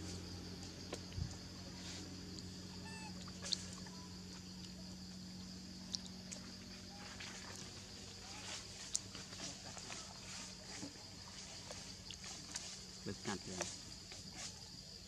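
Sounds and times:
steady low hum: 0:00.0 - 0:15.0
short pitched animal call: 0:02.8 - 0:03.6.

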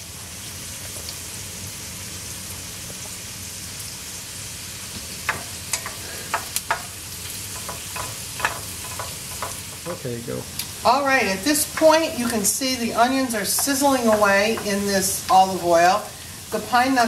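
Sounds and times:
food sizzling in oil: 0:00.0 - 0:17.0.

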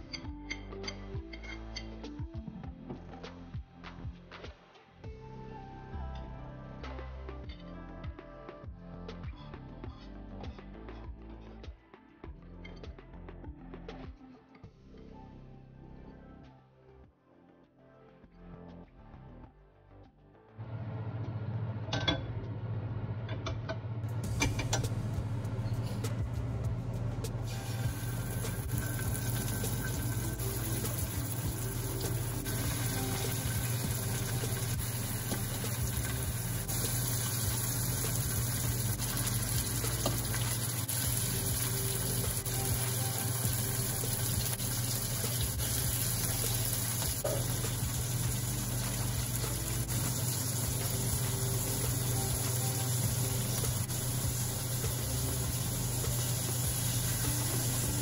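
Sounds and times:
fish sizzling in hot oil: 0:27.5 - 0:58.0.

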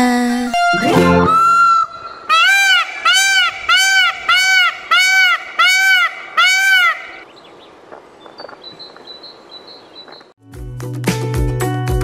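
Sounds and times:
peacock calling: 0:00.6 - 0:07.3.

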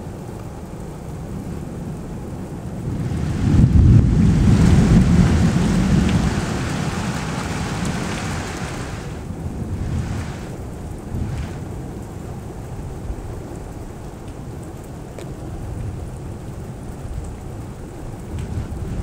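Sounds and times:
steady rain: 0:00.0 - 0:19.0
thunder rumbling: 0:02.5 - 0:13.0, 0:18.0 - 0:19.0.

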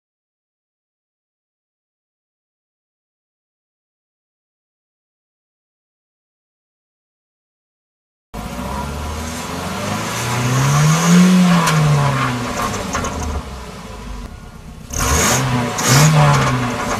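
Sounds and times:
car engine revving: 0:08.4 - 0:16.9.

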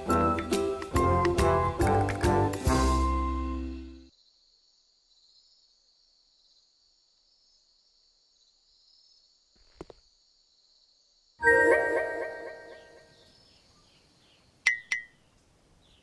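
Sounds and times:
children's music chord: 0:11.4 - 0:13.2.

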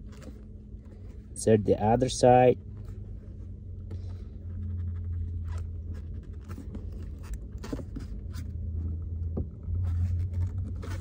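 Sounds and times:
steady low hum: 0:00.0 - 0:11.0
plastic air line scraping and clicking: 0:03.8 - 0:11.0.

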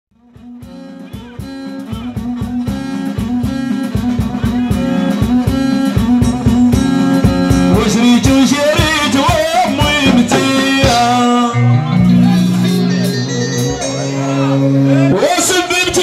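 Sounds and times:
drums: 0:00.1 - 0:16.0
keyboard: 0:00.2 - 0:16.0
man singing: 0:07.5 - 0:16.0.

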